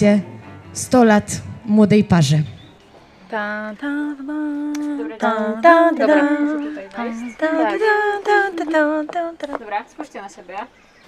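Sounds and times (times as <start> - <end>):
woman singing slow melody: 3.3 - 9.6.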